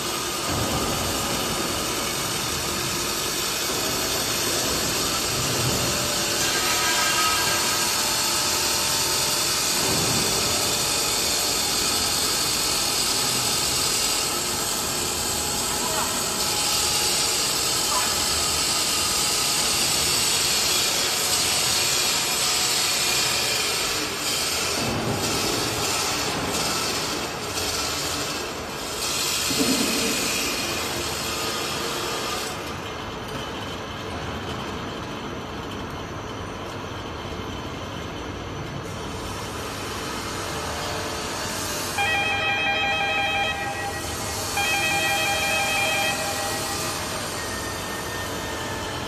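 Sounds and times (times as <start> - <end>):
carousel mechanical rumble: 0.0 - 29.0, 29.6 - 49.0
steady pitched tone: 41.9 - 49.0.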